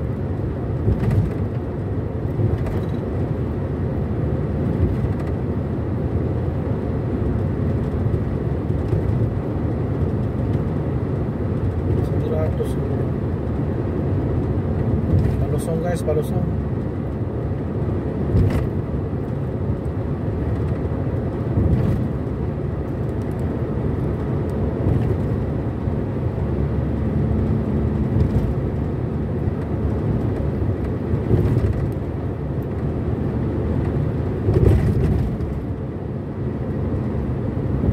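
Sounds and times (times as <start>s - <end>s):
tyres and engine rumble: 0.0s - 37.9s.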